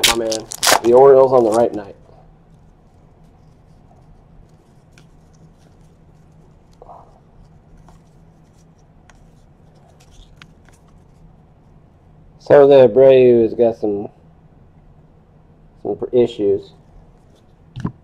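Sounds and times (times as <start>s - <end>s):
cards being flipped by hand: 0.0s - 1.9s, 2.6s - 6.8s, 7.4s - 11.2s
low electrical hum: 0.0s - 18.0s.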